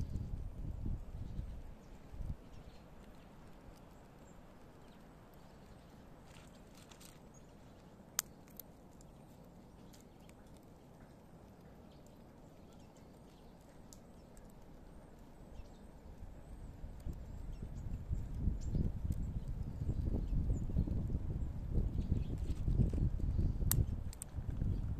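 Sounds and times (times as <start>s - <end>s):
squirrel gnawing nutshell: 2.6s - 15.4s.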